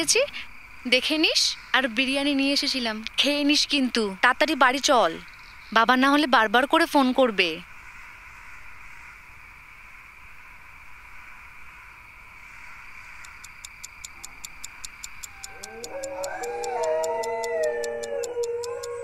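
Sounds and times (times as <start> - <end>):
clock-like ticking: 13.2 - 19.0
dogs howling: 15.3 - 19.0.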